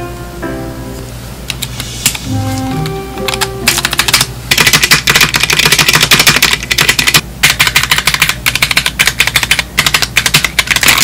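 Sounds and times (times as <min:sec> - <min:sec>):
mechanical keyboard key clacks: 0:03.3 - 0:11.0.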